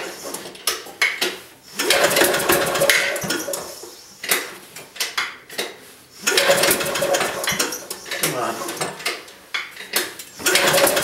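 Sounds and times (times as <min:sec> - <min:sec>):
diesel engine cranking clatter: 0:01.8 - 0:03.6, 0:06.2 - 0:08.0, 0:10.4 - 0:11.0.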